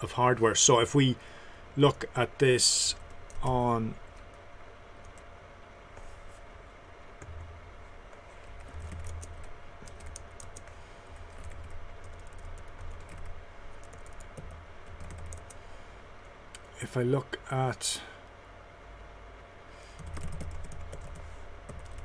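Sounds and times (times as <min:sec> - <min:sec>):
keyboard typing clicks: 0:08.6 - 0:10.7, 0:20.0 - 0:22.0.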